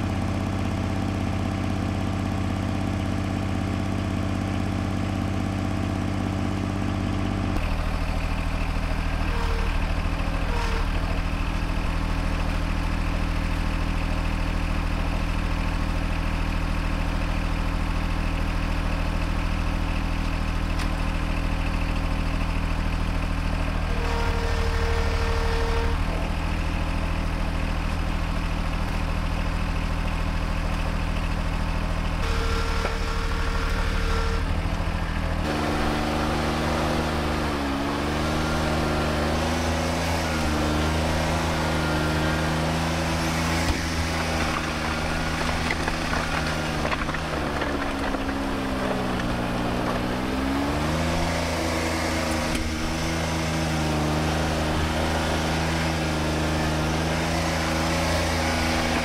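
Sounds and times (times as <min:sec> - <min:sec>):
tractor diesel engine running: 0:00.0 - 0:59.0
higher whine: 0:32.2 - 0:50.1.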